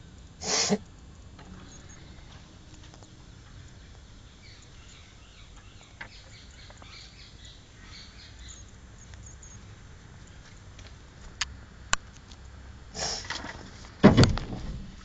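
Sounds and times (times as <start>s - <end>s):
small birds chirping: 0.0s - 11.5s
low steady outdoor hum: 0.0s - 15.0s.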